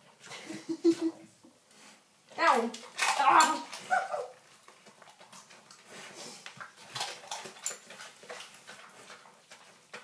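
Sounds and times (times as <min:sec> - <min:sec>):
dog sniffing and snuffling: 0:04.0 - 0:10.0.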